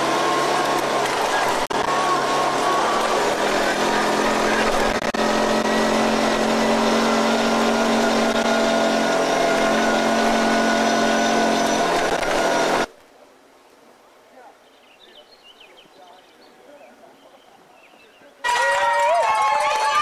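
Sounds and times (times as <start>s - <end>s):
rushing noise: 0.0s - 12.9s
utility vehicle engine running: 0.0s - 12.9s.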